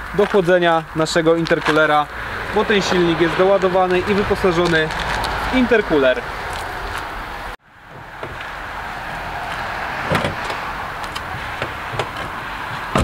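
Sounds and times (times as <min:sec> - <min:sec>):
car door opening clack: 0:10.0 - 0:13.0
car door shutting thump: 0:11.6 - 0:13.0.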